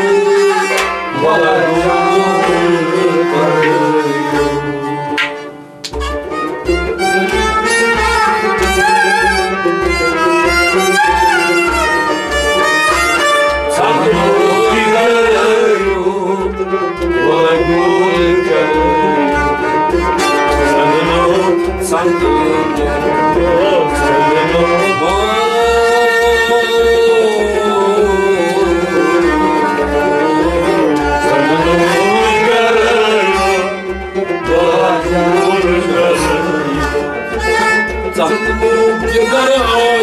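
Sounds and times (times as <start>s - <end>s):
bowed sarangi melody: 0.0s - 40.0s
harmonium: 0.0s - 40.0s
clay pot drum beat: 0.8s - 40.0s.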